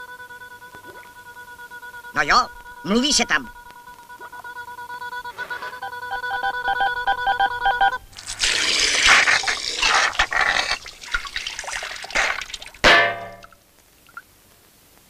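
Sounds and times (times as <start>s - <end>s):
electronic telephone line tone: 0.0s - 8.1s
water spraying gush: 8.2s - 12.8s.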